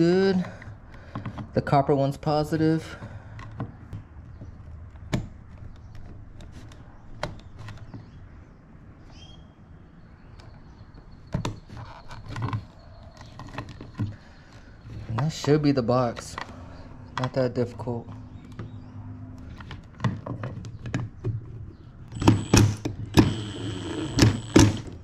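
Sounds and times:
plastic clicks and knocks: 19.4 - 23.3.

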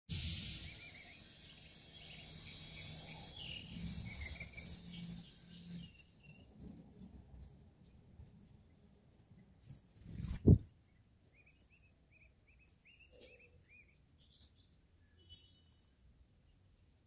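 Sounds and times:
faint bird chirps: 0.2 - 17.0
insects trilling: 0.3 - 6.6.

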